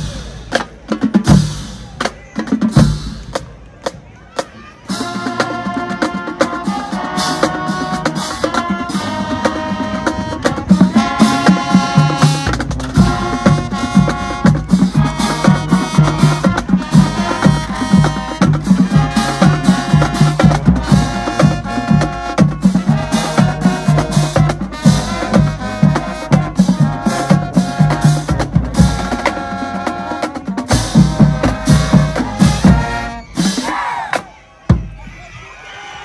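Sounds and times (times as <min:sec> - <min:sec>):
steady drum beat: 0:00.0 - 0:35.1
brass chords: 0:04.9 - 0:33.6.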